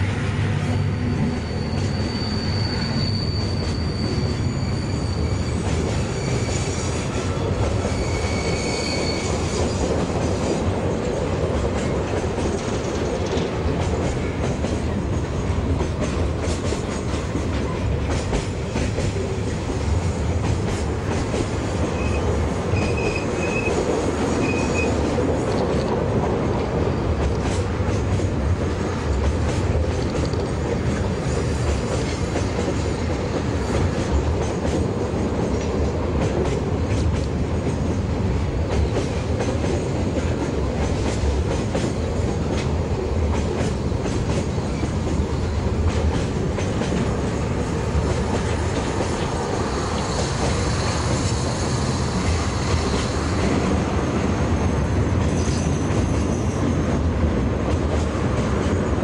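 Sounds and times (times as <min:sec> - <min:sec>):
train wheels rumbling on rail: 0:00.0 - 0:59.0
high wheel squeals: 0:00.4 - 0:09.9, 0:21.9 - 0:25.0.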